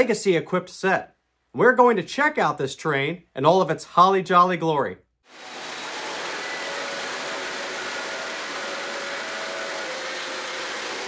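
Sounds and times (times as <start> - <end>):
model train wheels rumbling on rail: 5.3 - 11.0.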